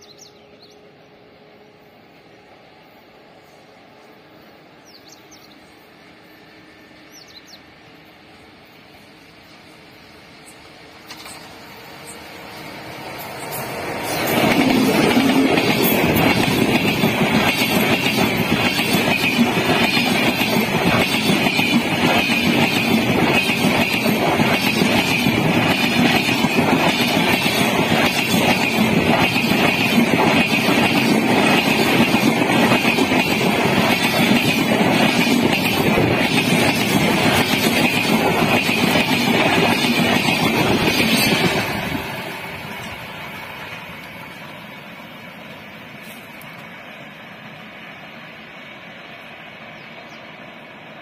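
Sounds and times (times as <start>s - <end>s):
train passing at high speed: 0.0s - 51.0s
steel wheels rattling on rails: 10.8s - 46.7s.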